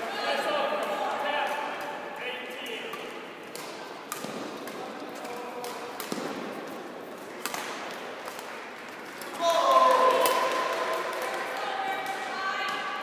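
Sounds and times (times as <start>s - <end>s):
sports hall background noise: 0.0s - 13.0s
racket hitting shuttlecock: 2.7s - 11.3s.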